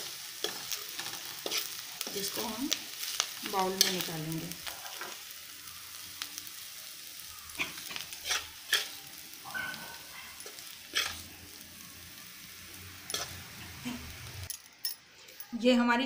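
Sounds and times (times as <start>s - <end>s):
faint sizzle from pan: 0.0s - 15.8s
metal spoon scraping a pan: 0.4s - 2.5s, 3.4s - 5.2s, 7.6s - 11.3s, 13.0s - 14.5s.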